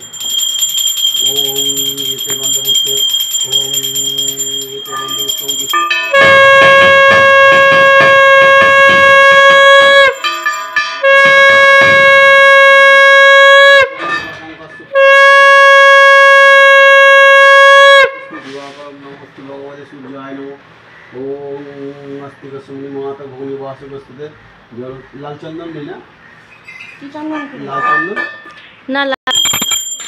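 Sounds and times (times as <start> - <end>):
conch shell blown: 1.2 - 14.2, 14.9 - 18.5.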